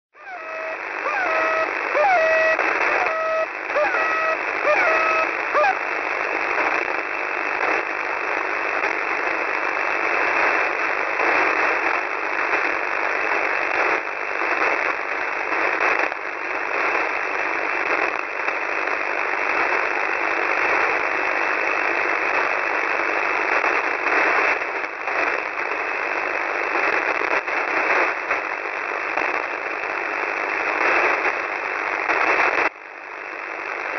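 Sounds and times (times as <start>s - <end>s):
short radio tones and chirps: 0.2s - 5.8s
radio static hiss with crackles: 0.2s - 33.9s.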